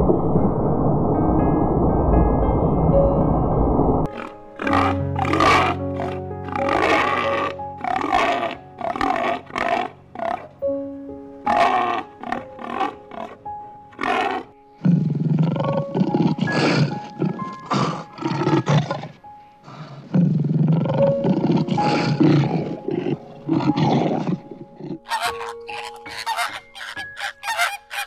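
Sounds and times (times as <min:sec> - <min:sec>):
soft background music: 0:00.0 - 0:28.0
lion roaring: 0:04.0 - 0:10.6, 0:11.4 - 0:26.1
pig grunts: 0:04.1 - 0:10.5, 0:11.4 - 0:27.3.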